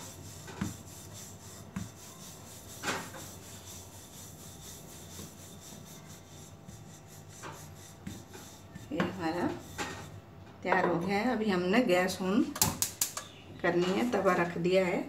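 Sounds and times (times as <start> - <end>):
rolling pin rubbing on dough: 0.0 - 10.3.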